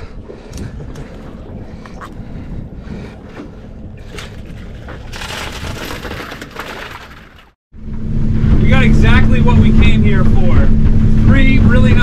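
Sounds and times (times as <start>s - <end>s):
wind buffeting microphone: 0.0s - 5.8s.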